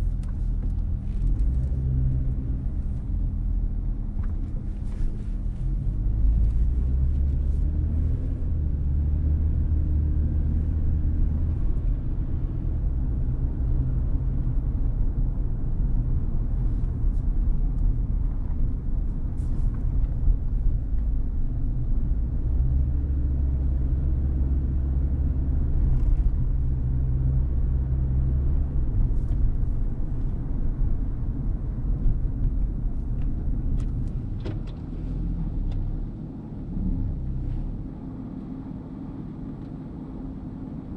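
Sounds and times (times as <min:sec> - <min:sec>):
car engine hum: 0:00.0 - 0:40.9
road noise: 0:00.0 - 0:40.9.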